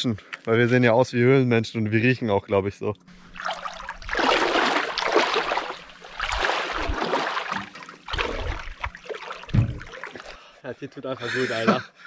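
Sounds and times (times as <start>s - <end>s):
water splashing around wading legs: 3.2s - 10.4s.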